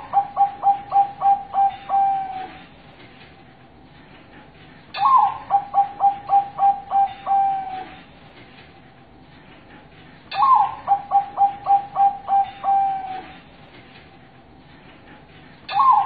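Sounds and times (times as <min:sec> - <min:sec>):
dove cooing song: 0:00.0 - 0:02.7, 0:05.0 - 0:08.0, 0:10.3 - 0:13.4, 0:15.7 - 0:16.0.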